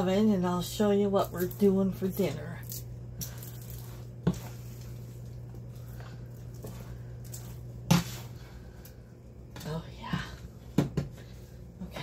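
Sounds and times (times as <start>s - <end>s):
spoon stirring popcorn: 0.0s - 8.9s
steady low hum: 0.0s - 12.0s.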